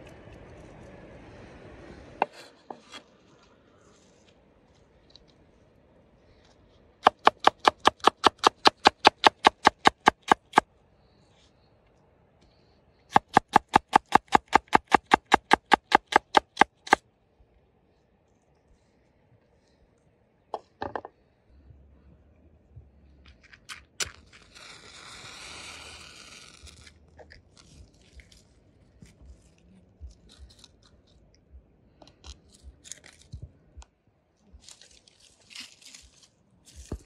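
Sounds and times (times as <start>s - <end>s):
knife chopping onion on wooden board: 7.0s - 10.6s.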